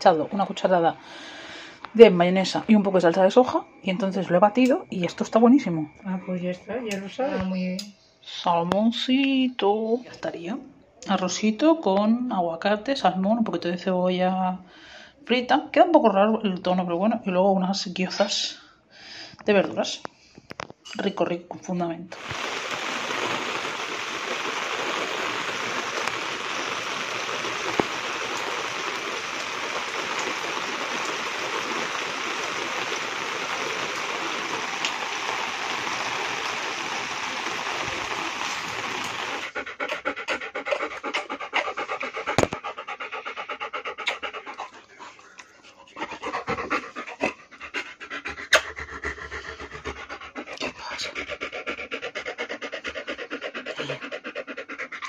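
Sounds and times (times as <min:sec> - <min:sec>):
steady rain falling: 0:00.0 - 0:01.8, 0:22.2 - 0:40.1
dog panting: 0:39.1 - 0:55.0.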